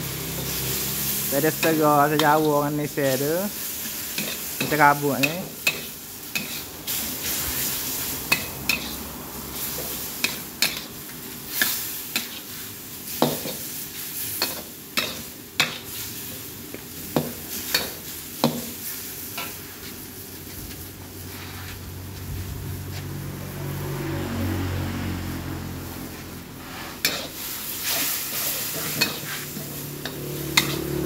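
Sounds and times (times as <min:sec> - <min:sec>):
food sizzling: 0:00.0 - 0:31.0
metal spatula scraping wok: 0:00.2 - 0:16.3, 0:26.1 - 0:31.0.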